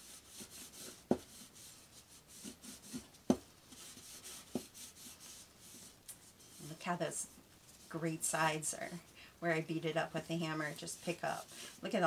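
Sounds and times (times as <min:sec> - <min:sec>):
rubbing wooden board: 0:00.0 - 0:06.8.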